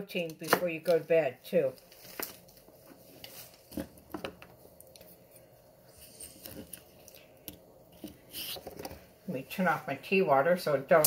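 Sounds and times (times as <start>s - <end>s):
plastic bag rustling: 1.7s - 4.1s.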